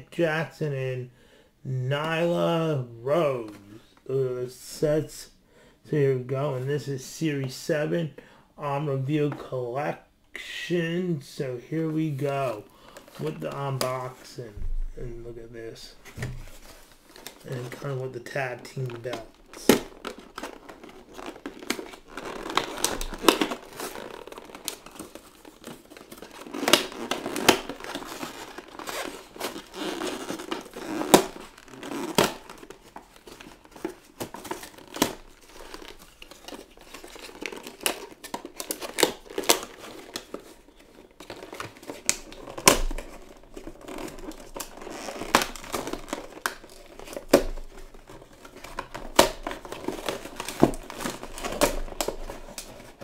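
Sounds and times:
plastic and cardboard crinkling: 0:12.0 - 0:53.0.

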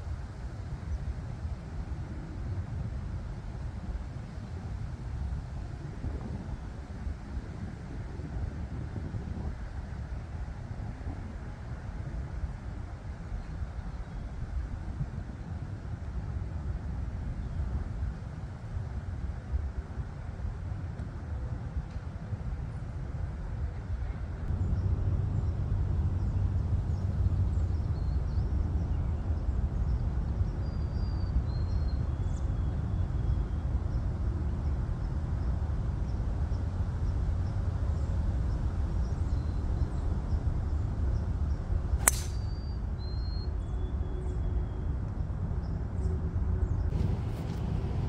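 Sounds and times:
steady low rumble: 0:24.0 - 0:30.2, 0:46.7 - 0:48.0
golf driver striking ball: 0:42.0 - 0:42.6.

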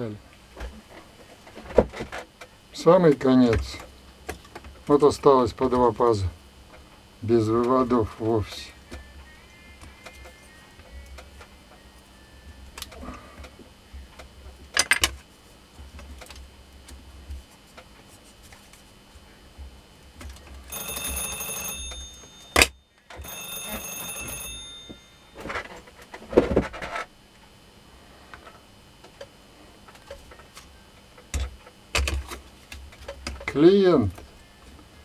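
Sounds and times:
phone ringtone: 0:20.7 - 0:25.6.

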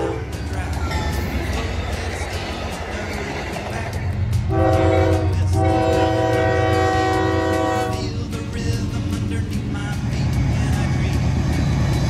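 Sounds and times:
locomotive air horn blasts: 0:00.0 - 0:00.3, 0:04.5 - 0:08.1
passing train rumble: 0:00.0 - 0:12.0.

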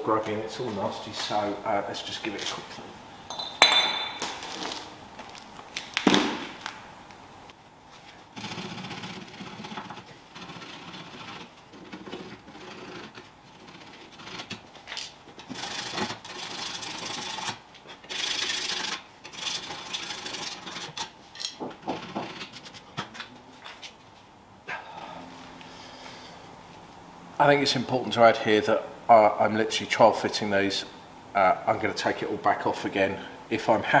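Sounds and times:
hand tool scraping metal: 0:08.4 - 0:23.0.

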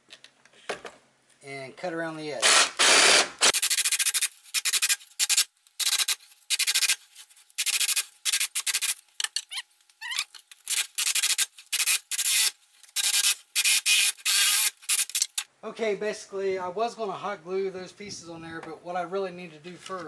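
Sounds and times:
jigsaw blade rasping: 0:02.5 - 0:07.0, 0:07.6 - 0:15.5.

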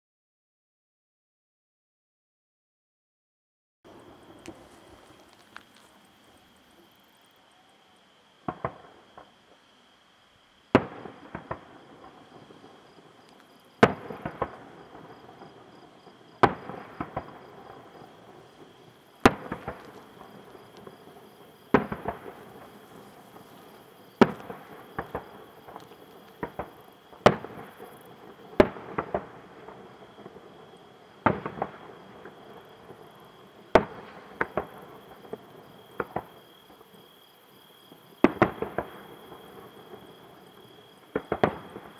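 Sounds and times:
firework crackling: 0:03.9 - 0:07.2, 0:10.8 - 0:15.8, 0:16.4 - 0:30.6, 0:31.2 - 0:37.0, 0:38.1 - 0:41.9
firework shells bursting: 0:16.4 - 0:27.9.

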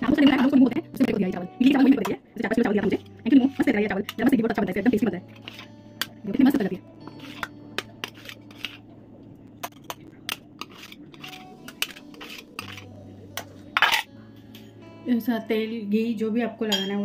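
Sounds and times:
steel spoon scraping and clinking: 0:05.4 - 0:05.7, 0:07.0 - 0:08.8, 0:09.6 - 0:14.7.

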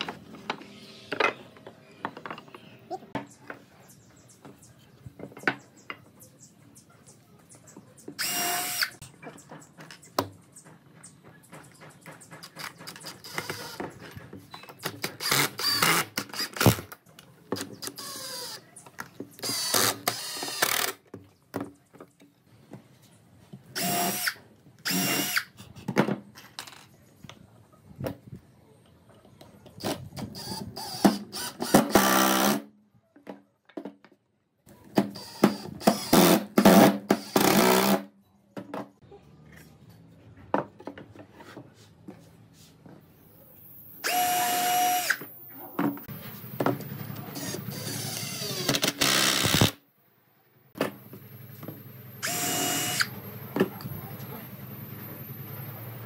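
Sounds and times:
impact driver driving screws: 0:14.9 - 0:16.9, 0:47.4 - 0:49.8.

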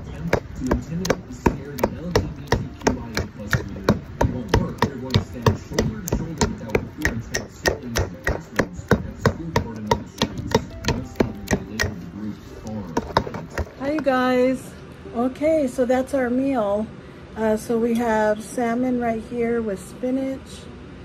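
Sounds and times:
knife chopping on cutting board: 0:00.0 - 0:14.0.

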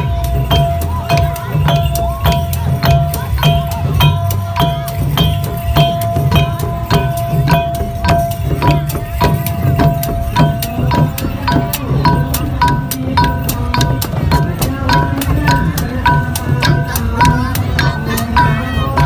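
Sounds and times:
goblet drums beating: 0:00.0 - 0:19.0
hand cymbals clinking: 0:00.0 - 0:19.0.

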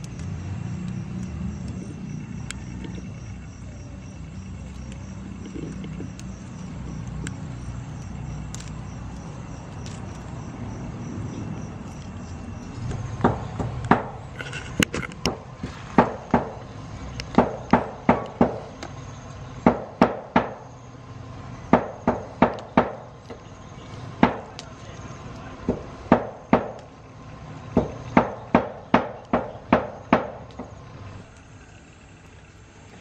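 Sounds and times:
low outdoor rumble: 0:00.0 - 0:33.0.

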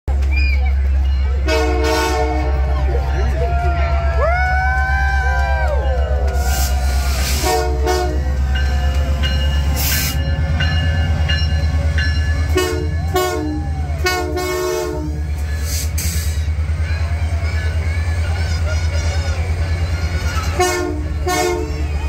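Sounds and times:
diesel locomotive engine rumbling: 0:00.0 - 0:22.0
train horn short toots: 0:01.4 - 0:02.9, 0:06.4 - 0:08.4, 0:12.5 - 0:15.3, 0:20.2 - 0:22.0.

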